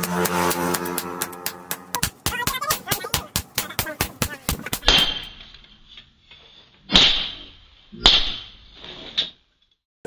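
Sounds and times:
hammer striking steel on anvil: 0.0 - 5.4, 6.9 - 8.6.

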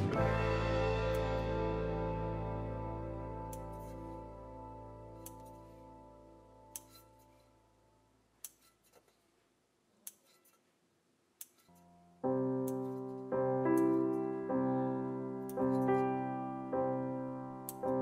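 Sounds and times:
piano music: 0.0 - 6.8, 11.8 - 18.0
scissors snipping dough: 3.5 - 4.2, 5.2 - 5.8, 6.7 - 7.4, 8.4 - 9.2, 10.0 - 10.7, 11.4 - 11.9, 12.6 - 13.1, 13.7 - 14.2, 15.4 - 16.1.

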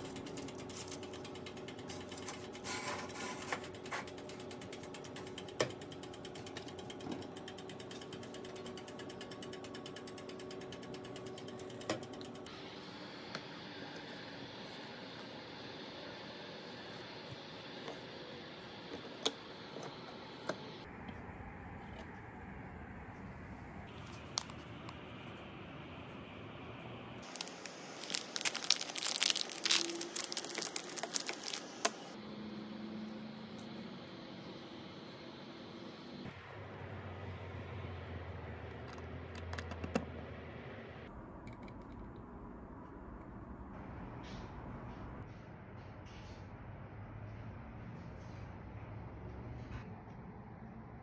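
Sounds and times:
dial timer ticking: 4.0 - 12.5
plastic bag crinkling: 27.2 - 32.2.

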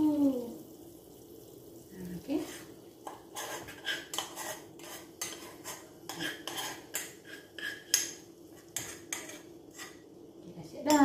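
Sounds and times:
metal spoon scraping a saucepan: 2.4 - 10.0.

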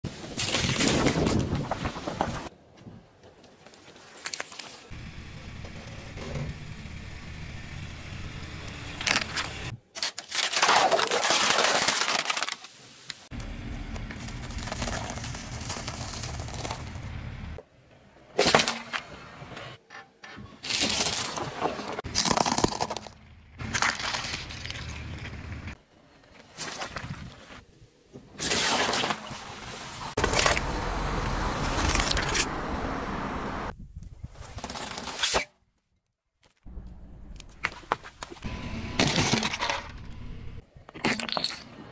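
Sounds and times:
tyre crushing plastic cups: 20.7 - 24.4
low car rumble: 30.2 - 33.7.

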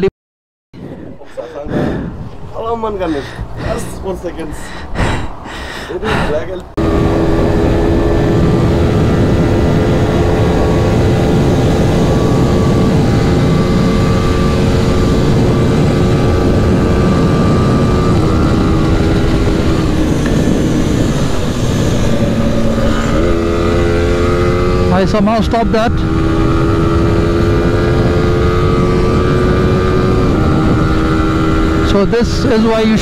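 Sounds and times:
wind rush on microphone: 0.8 - 33.0
motorcycle engine at cruising speed: 6.8 - 33.0.

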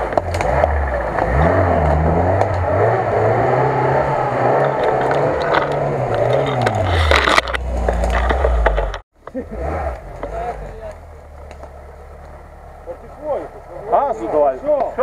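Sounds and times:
car engine revving: 0.0 - 15.0
branches scraping against car: 4.4 - 9.0.

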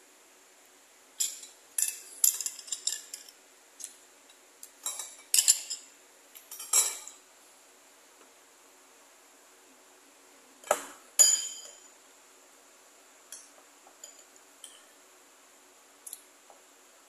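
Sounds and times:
metal spoon clinking on ceramic bowl: 6.5 - 7.2, 11.2 - 11.9.

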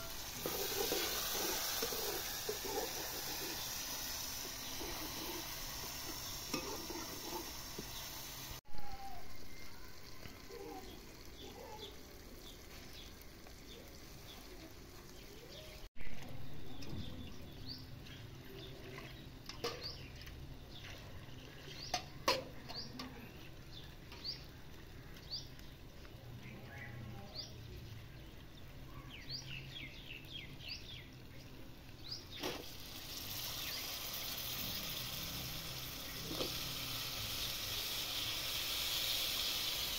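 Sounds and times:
onions sizzling in a pan: 0.0 - 16.2, 17.2 - 39.9
small birds chirping: 0.0 - 39.9.

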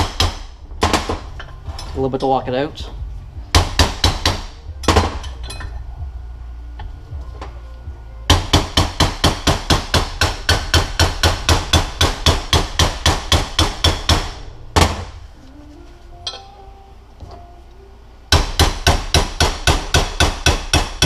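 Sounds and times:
hammer tapping on metal punch: 8.3 - 15.0, 18.3 - 21.0.

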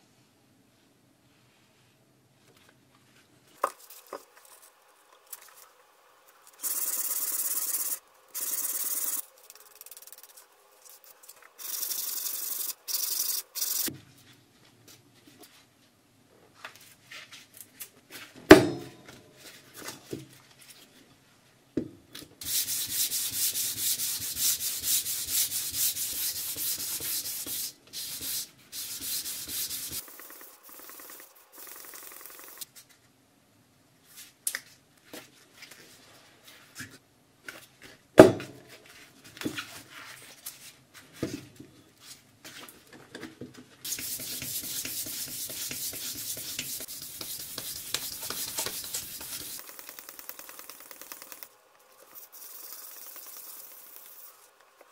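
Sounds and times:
handling scrapes and ticks: 6.5 - 13.9, 44.0 - 54.9
blade rubbing on sandpaper: 22.4 - 32.5, 43.9 - 49.8.

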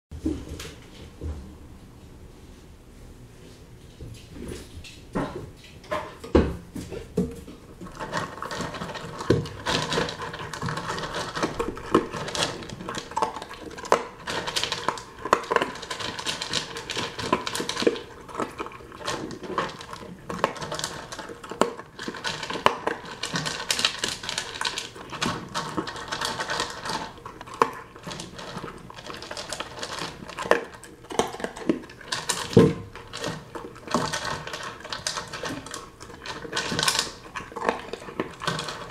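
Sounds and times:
kibble clattering in plastic bowl: 7.8 - 38.9.

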